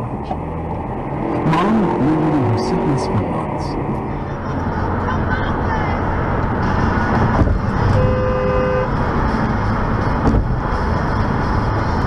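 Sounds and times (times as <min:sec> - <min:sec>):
road and tyre rumble: 0:00.0 - 0:12.0
car horn: 0:06.7 - 0:09.0.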